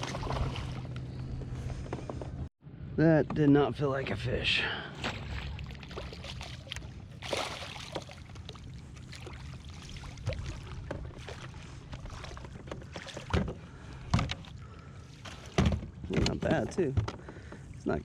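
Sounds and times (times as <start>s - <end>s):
water splashing: 0.0s - 0.9s, 4.9s - 16.9s.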